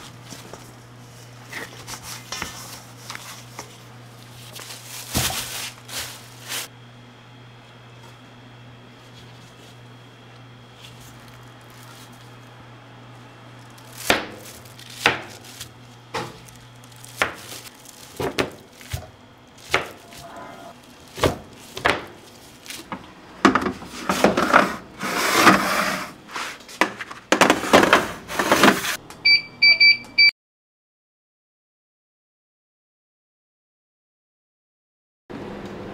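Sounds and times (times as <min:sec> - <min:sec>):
scraping and rubbing dough: 0:00.0 - 0:06.7, 0:08.9 - 0:12.5, 0:13.5 - 0:29.0
oven electronic beeps: 0:29.2 - 0:30.3.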